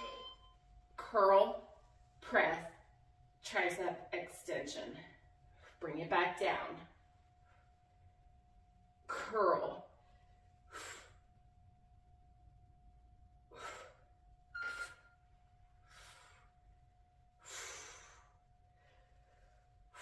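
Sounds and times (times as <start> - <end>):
faint steady hum: 0.0 - 20.0
woman breathing hard: 13.5 - 14.2, 17.4 - 20.0.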